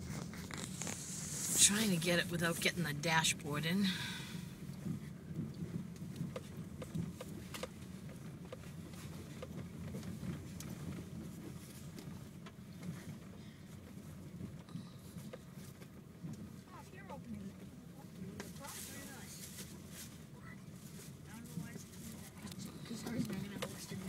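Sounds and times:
car road noise rumble: 0.0s - 24.0s.

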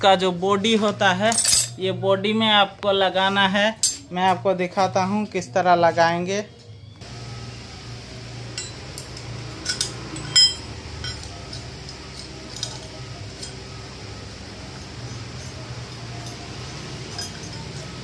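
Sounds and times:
metal tools clinking: 0.8s - 1.8s, 3.8s - 4.4s, 8.5s - 14.1s, 14.8s - 18.0s
steady low hum: 6.5s - 18.0s.

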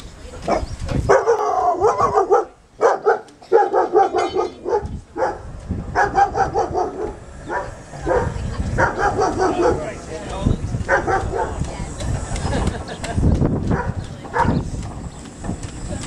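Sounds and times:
wind rumbling on microphone: 0.0s - 16.0s
dog barking: 0.5s - 10.0s, 10.9s - 11.6s, 13.7s - 14.6s.

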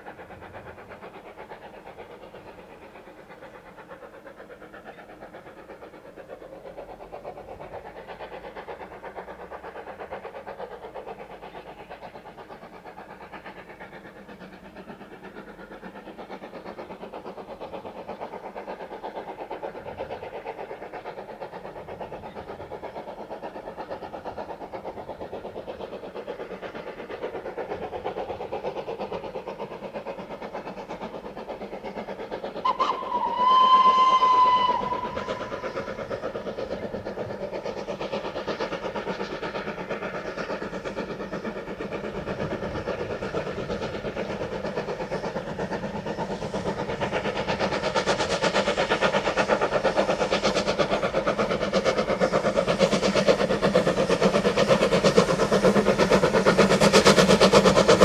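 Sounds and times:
steam locomotive exhaust beats: 0.0s - 58.0s
steam locomotive whistle: 32.6s - 35.4s.

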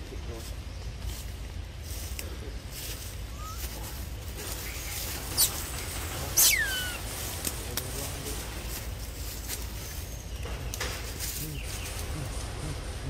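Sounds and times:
baby monkey squealing: 3.3s - 3.9s, 4.6s - 5.7s, 6.3s - 7.1s.

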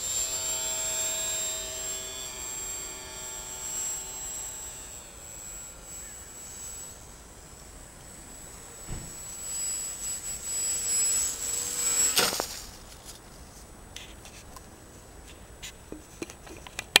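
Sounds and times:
model plane motor whine: 0.0s - 13.6s
plane landing thump: 8.8s - 9.3s, 12.1s - 12.8s.

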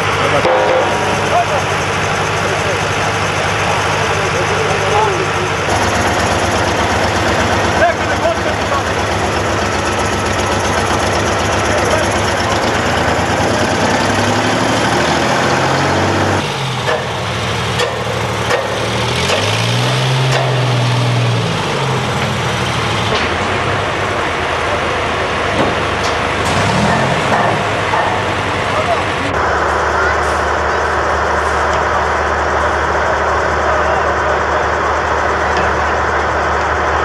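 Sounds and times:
crane engine revving: 0.0s - 37.0s
sharp knocks: 0.4s - 2.4s, 16.8s - 19.6s, 20.2s - 20.8s, 25.6s - 28.4s.

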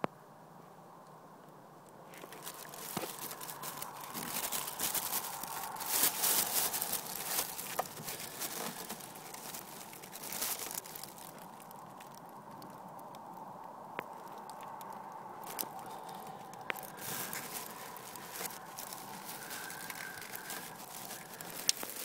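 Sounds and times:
hand rustling among rubber hoses: 2.1s - 12.1s, 15.4s - 22.0s.

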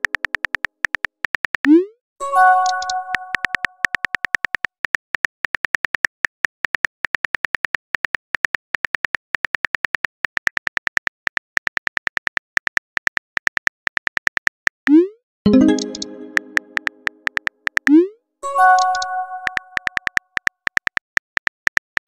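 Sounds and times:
phone keyboard clicks: 2.6s - 4.7s.

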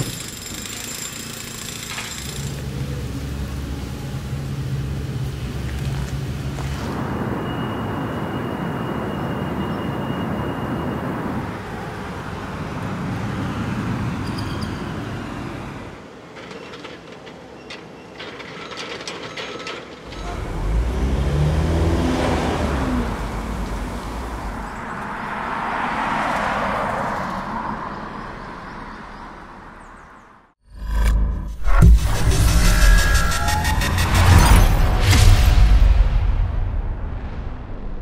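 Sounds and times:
scattered clicks and knocks: 0.0s - 2.7s, 16.2s - 20.3s
steady traffic: 0.0s - 38.0s
vehicles passing with low rumble: 0.2s - 30.6s.

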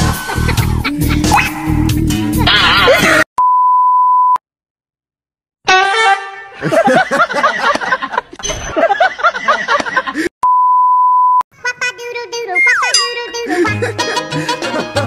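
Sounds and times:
warbling singing: 0.8s - 2.6s.

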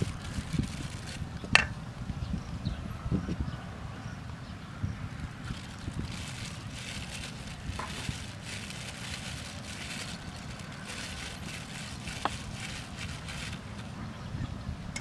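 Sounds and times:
plastic bag crinkling: 0.0s - 1.3s, 5.4s - 13.9s
low wind rumble on microphone: 0.0s - 15.0s.

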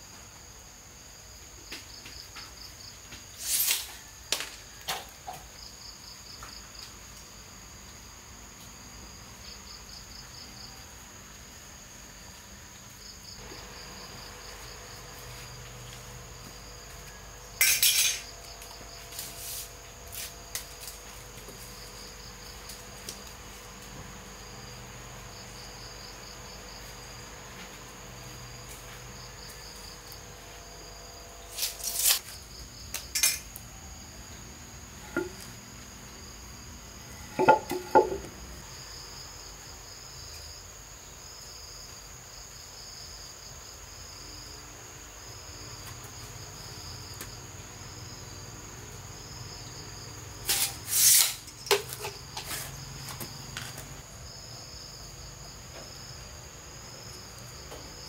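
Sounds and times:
crickets chirping: 0.0s - 58.0s
sharp knocks and clatters: 37.3s - 38.3s.

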